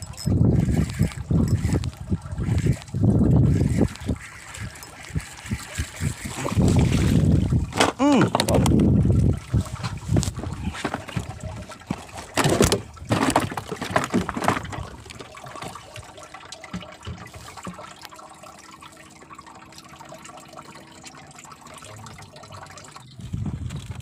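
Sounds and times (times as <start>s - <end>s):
water sloshing around boat: 0.0s - 24.0s.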